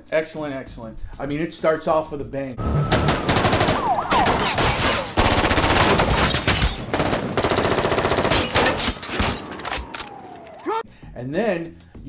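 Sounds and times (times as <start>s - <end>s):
automatic rifles firing: 2.9s - 10.4s.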